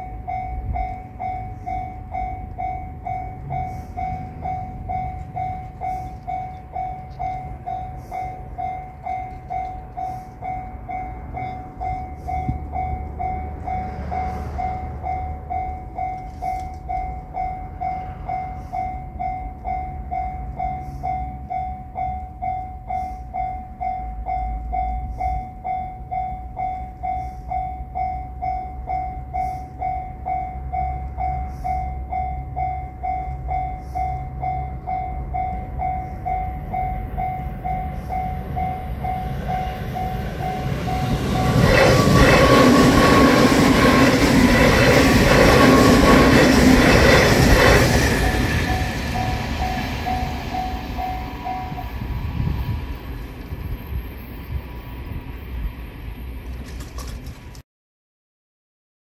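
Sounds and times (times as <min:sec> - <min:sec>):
railroad crossing alarm ringing: 0:00.0 - 0:56.5
train rumble: 0:00.0 - 0:57.6.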